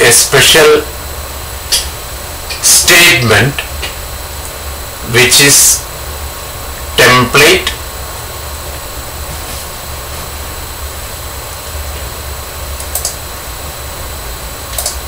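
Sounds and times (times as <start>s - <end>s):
even hiss: 0.0s - 13.8s
faint clicks: 12.8s - 13.2s, 14.7s - 15.0s.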